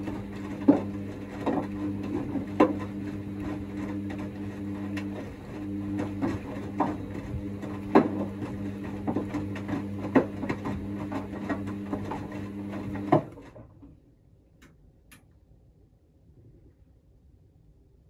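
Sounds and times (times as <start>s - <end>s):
wet laundry knocking in drum: 0.0s - 13.5s
washing machine motor hum: 0.0s - 14.1s.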